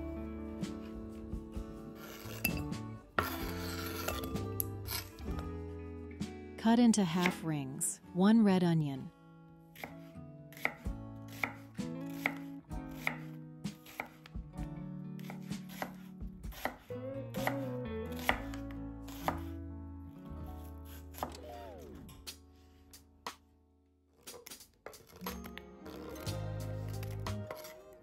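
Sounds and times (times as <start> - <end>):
soft background music: 0.0 - 23.5, 24.3 - 28.0
knife chopping onion on board: 7.2 - 7.4, 9.8 - 14.3, 15.2 - 19.5, 21.1 - 21.4, 27.0 - 27.8.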